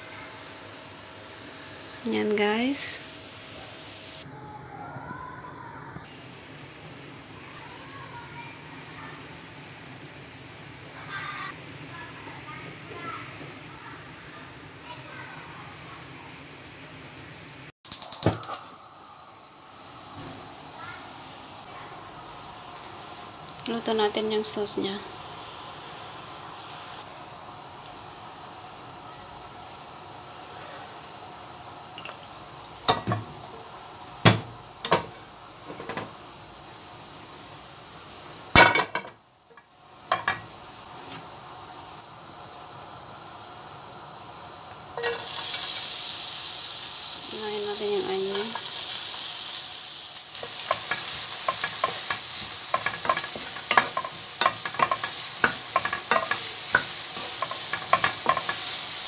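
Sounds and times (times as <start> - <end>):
onion sizzling in hot oil: 0.1 - 4.3, 17.8 - 59.0.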